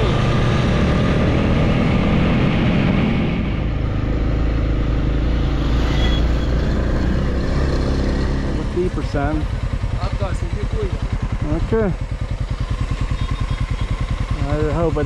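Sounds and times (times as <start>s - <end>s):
road and wind noise: 0.0s - 15.0s
vehicle engine running: 0.0s - 15.0s.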